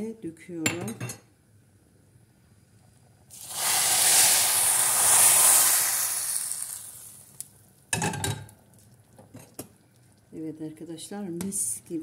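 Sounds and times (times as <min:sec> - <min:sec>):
hot oil sizzling: 0:03.3 - 0:07.9.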